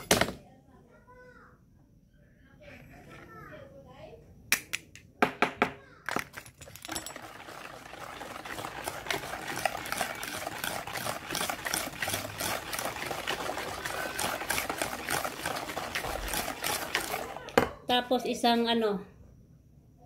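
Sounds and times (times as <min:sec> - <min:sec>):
whisk clicking against plastic bowl: 0:07.5 - 0:17.7.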